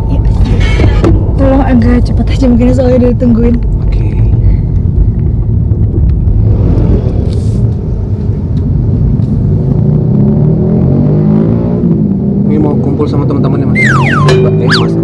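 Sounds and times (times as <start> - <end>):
car engine accelerating: 4.8 - 15.0.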